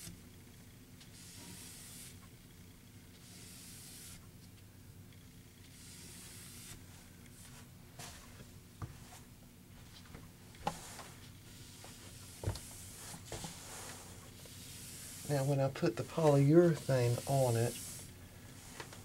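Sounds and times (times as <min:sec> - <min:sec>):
cloth rag wiping wood: 0:10.7 - 0:19.0.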